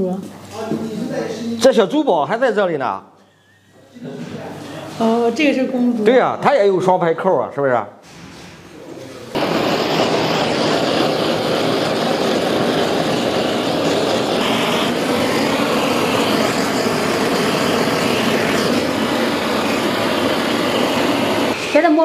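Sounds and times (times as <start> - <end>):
machine rushing noise: 9.4 - 21.8.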